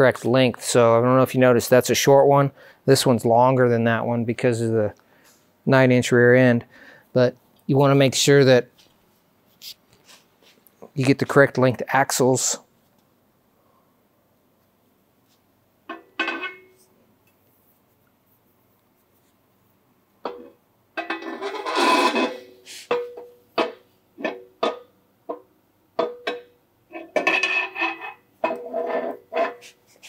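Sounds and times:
metal shaft scraping slide: 21.1s - 23.1s, 27.0s - 30.0s.

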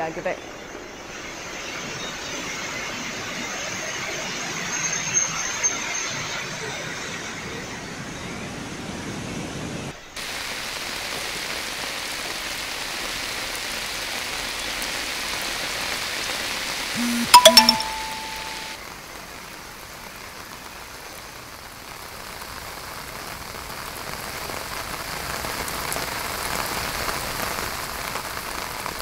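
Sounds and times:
heavy rain: 8.6s - 16.9s, 18.6s - 29.0s.

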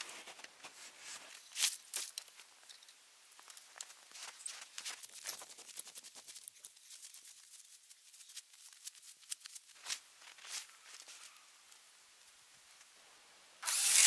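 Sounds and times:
footsteps crunching through snow: 0.0s - 2.1s, 3.4s - 11.4s.

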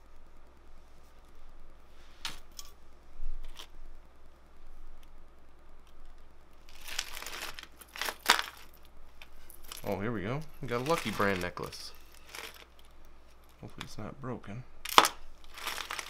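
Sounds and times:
chains rustling: 9.4s - 12.7s, 15.5s - 16.0s.

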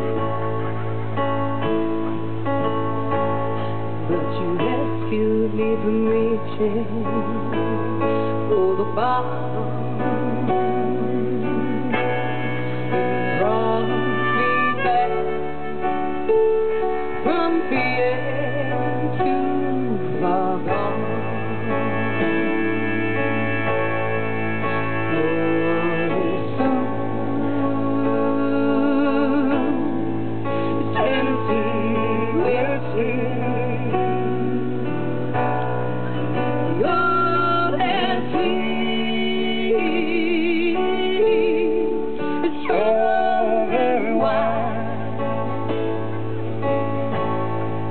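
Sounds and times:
acoustic guitar melody: 9.8s - 47.9s.

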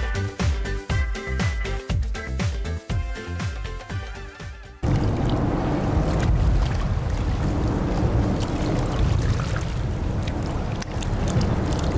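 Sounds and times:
motorboat engine rumble: 4.8s - 11.9s
water splashing: 4.8s - 11.9s.

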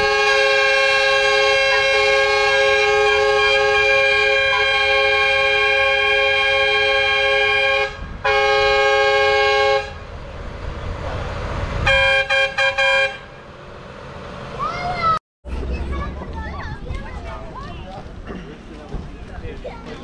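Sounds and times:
tractor horns blowing: 0.0s - 10.1s, 11.8s - 13.4s
tractors idling: 9.9s - 20.0s.

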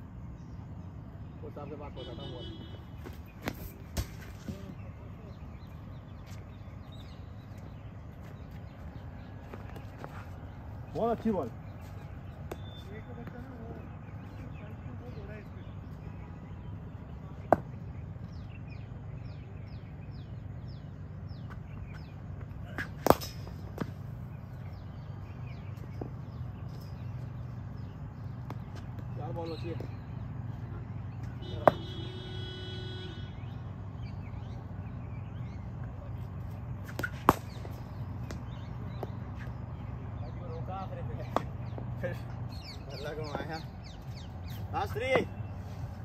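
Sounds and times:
bird chirping: 0.0s - 46.0s
low outdoor hum: 0.0s - 46.0s
cricket bat striking ball: 17.4s - 17.9s, 22.6s - 24.0s, 28.3s - 29.1s, 31.3s - 32.2s, 36.8s - 39.5s, 41.2s - 41.9s.

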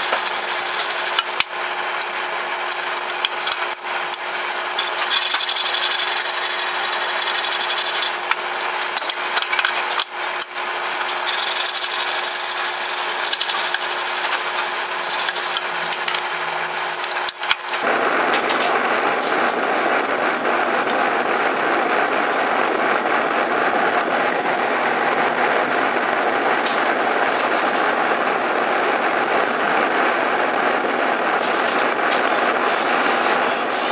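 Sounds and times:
gas forge burner rushing: 0.0s - 33.9s.

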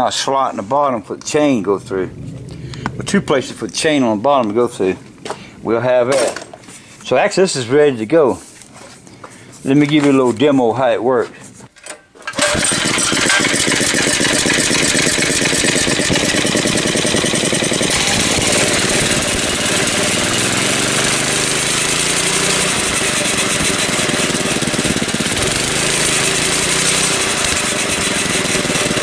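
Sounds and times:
go-kart engine revving: 12.3s - 29.0s.

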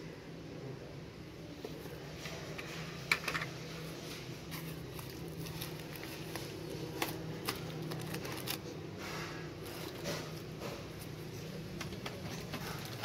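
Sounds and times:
low steady hum: 0.0s - 13.0s
packaging rustling: 4.0s - 8.8s.

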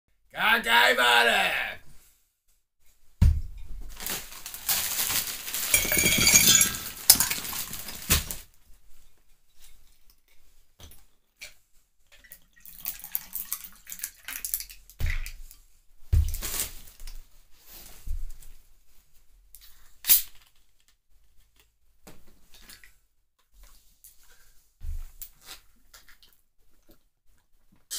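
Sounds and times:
glass bottles being handled: 5.5s - 8.0s
ice cubes clinking in a glass: 5.5s - 8.0s
bottles knocking down on surface: 5.6s - 8.0s.

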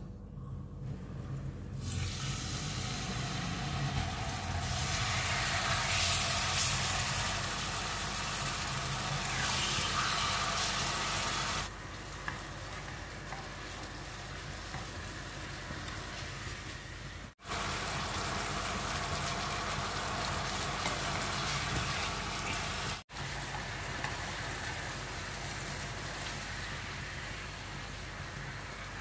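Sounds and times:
steady low hum: 0.0s - 7.8s
meat sizzling in hot oil: 1.8s - 11.8s, 17.4s - 29.0s.

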